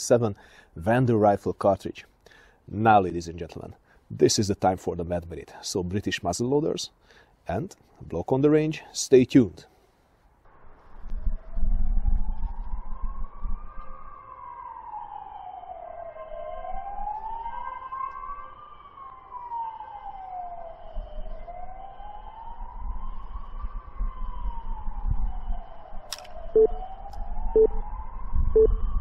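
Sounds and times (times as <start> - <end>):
emergency siren wailing: 10.8 - 29.0
sharp click: 26.1 - 26.4.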